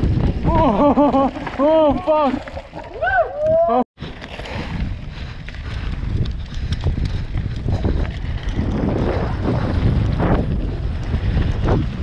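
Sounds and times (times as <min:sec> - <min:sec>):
wind buffeting microphone: 0:00.0 - 0:12.0
bike clicks and rattles: 0:04.0 - 0:12.0
tyres rumbling over rough ground: 0:04.0 - 0:12.0.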